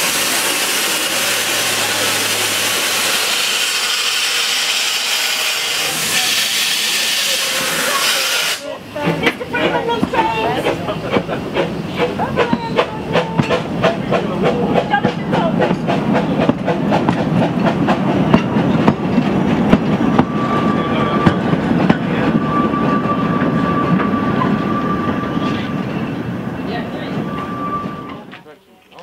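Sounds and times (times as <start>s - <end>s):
train wheels clicking on rails: 0.0s - 28.5s.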